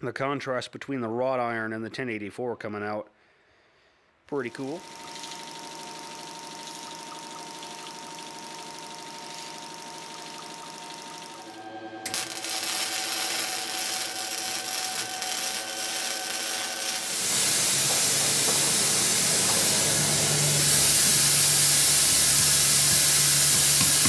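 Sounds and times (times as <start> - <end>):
welding arc crackling: 4.5 - 24.0
gas torch flame hissing: 10.8 - 24.0.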